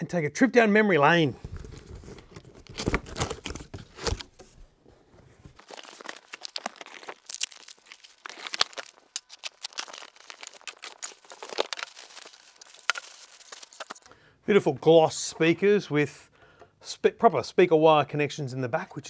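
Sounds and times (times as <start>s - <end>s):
plastic packaging crinkling: 1.4s - 4.5s, 5.4s - 14.1s.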